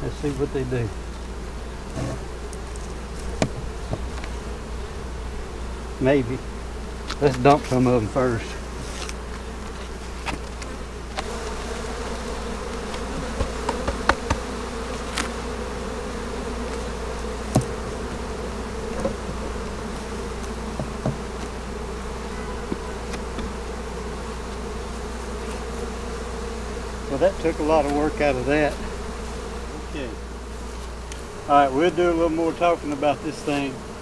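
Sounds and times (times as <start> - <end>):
honeybees buzzing: 0.0 - 34.0
sharp knocks: 3.4 - 4.3, 13.2 - 14.5, 17.5 - 18.0, 20.7 - 21.3.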